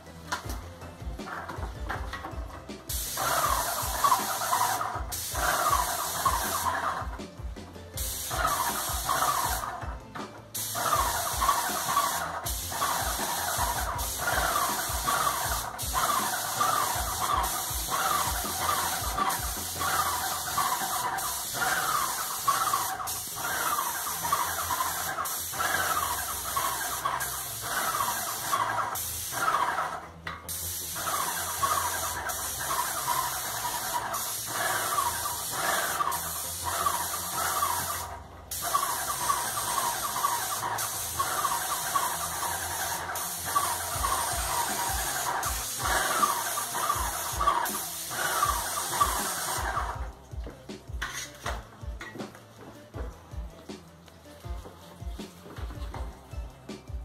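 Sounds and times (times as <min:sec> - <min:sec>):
paint sprayer hissing with squeal: 0:02.9 - 0:07.1, 0:08.0 - 0:09.9, 0:10.5 - 0:50.0.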